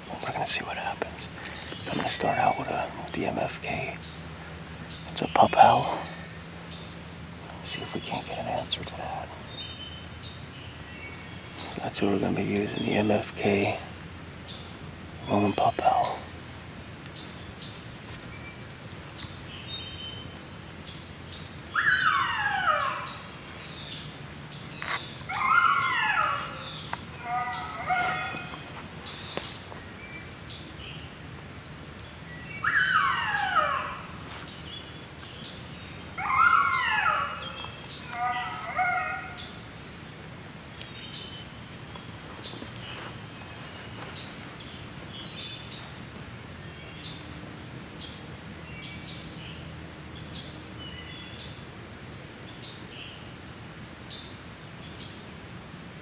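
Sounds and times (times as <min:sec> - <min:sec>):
songbirds chirping: 0:00.0 - 0:56.0
recorded coyote pup howling: 0:21.6 - 0:23.6, 0:24.8 - 0:28.8, 0:32.5 - 0:34.4, 0:36.1 - 0:39.6
yips: 0:25.3 - 0:26.6.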